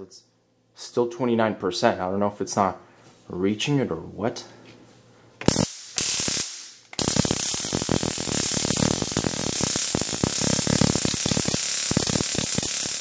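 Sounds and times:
stun gun crackling: 5.4 - 13.0.

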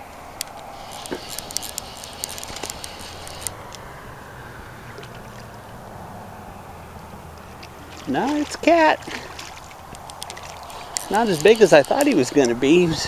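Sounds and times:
wind and water hiss: 0.0 - 13.0
fly reel clicking: 0.4 - 3.8, 10.0 - 12.8.

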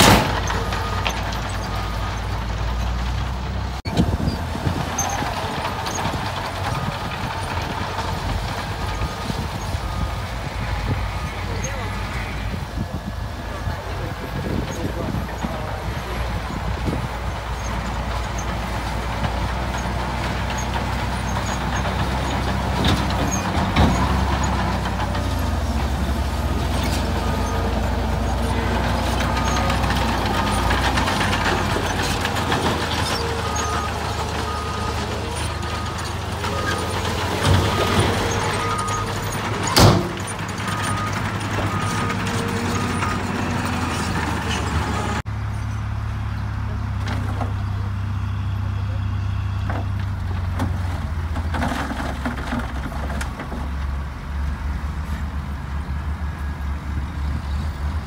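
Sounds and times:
soil and rock sliding: 0.0 - 45.2, 49.2 - 55.3
diesel truck engine under load: 0.0 - 58.0.

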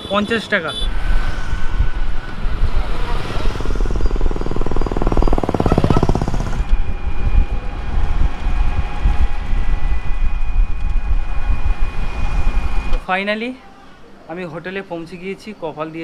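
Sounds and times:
road noise: 0.0 - 13.1
wind rumbling on microphone: 0.9 - 13.0
steady high whine: 1.0 - 13.0
puttering engine rattling: 3.4 - 6.7.

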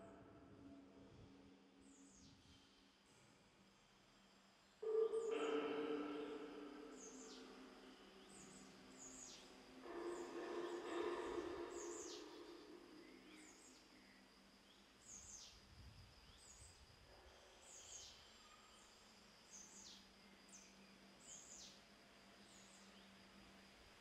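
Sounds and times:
birds chirping: 4.8 - 14.1.

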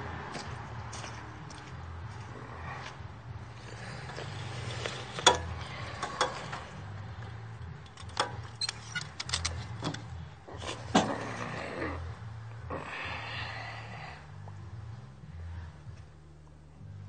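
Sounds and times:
steady low hum: 0.0 - 17.0
ratchet strap buckle clicking: 7.8 - 10.1.

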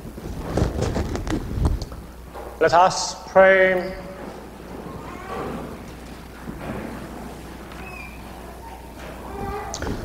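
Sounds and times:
faint rustling: 0.0 - 2.7
steady low hum: 0.0 - 10.0.

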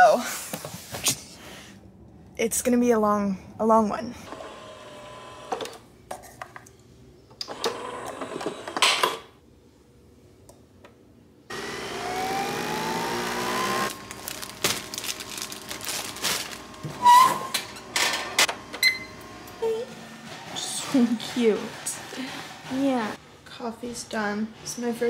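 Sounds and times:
coffee machine whining: 4.3 - 5.8, 7.4 - 9.1, 11.5 - 23.2.

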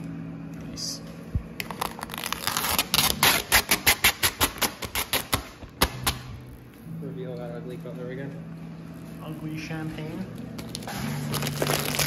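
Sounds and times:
vinyl film crackling snaps: 1.6 - 6.3, 10.5 - 12.0.

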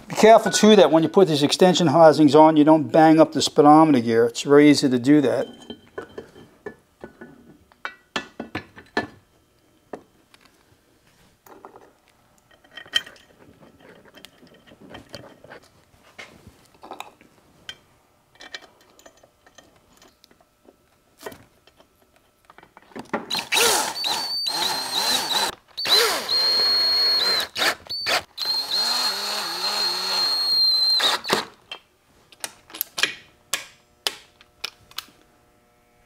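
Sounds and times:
cordless drill driving bolts: 23.3 - 31.6.

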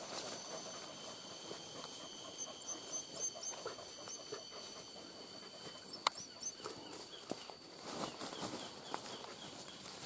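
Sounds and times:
high-pitched insect drone: 0.0 - 7.8
dogs whining and panting: 0.0 - 10.0
bird chirps: 0.1 - 10.0.

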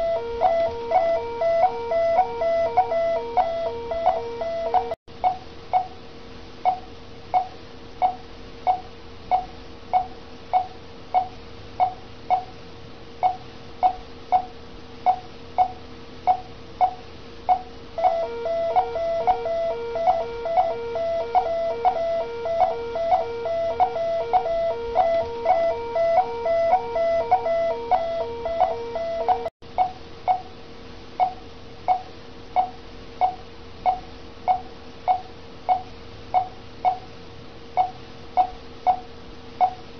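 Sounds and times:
fast repeating alarm tone: 0.0 - 5.0, 18.0 - 29.5
patient monitor beeping: 0.0 - 5.9, 16.3 - 29.5
steady hum: 0.0 - 39.9.

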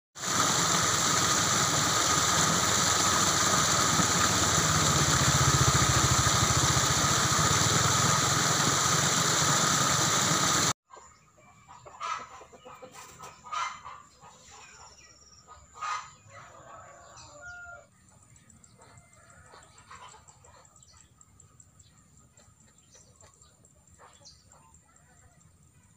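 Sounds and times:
water pouring over weir: 0.2 - 10.7
chickens clucking: 10.9 - 20.8.

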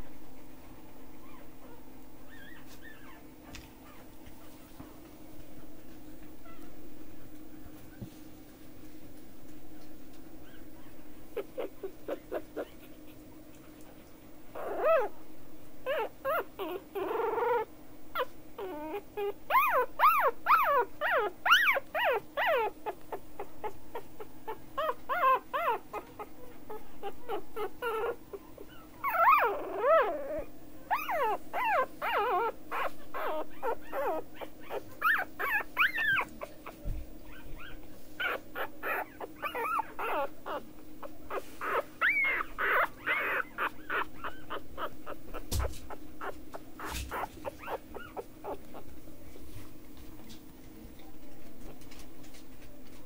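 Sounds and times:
puppy whimpering and squeaking: 1.2 - 4.5, 6.4 - 6.7, 10.4 - 13.2, 14.5 - 15.2, 15.8 - 48.9.

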